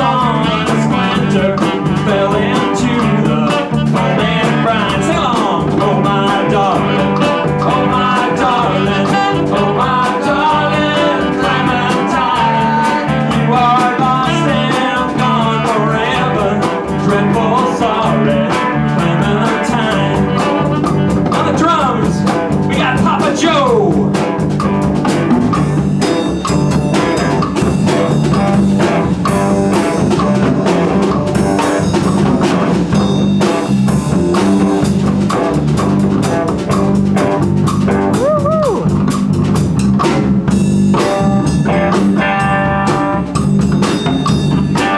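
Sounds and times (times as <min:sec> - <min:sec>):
saxophone melody: 0:00.0 - 0:05.0, 0:06.6 - 0:13.4, 0:18.1 - 0:21.7
drum strokes: 0:00.0 - 0:44.9
live blues band playing: 0:00.0 - 0:44.9.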